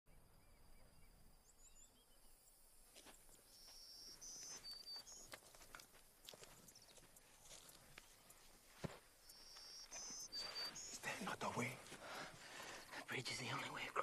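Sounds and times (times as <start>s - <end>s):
insects calling: 0.1s - 14.0s
birds chirping: 3.2s - 14.0s.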